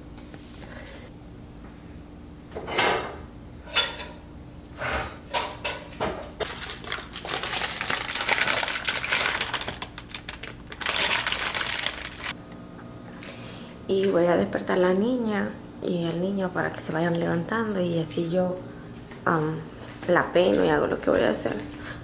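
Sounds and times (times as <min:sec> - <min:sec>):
plastic bag rustling: 0:06.4 - 0:12.4.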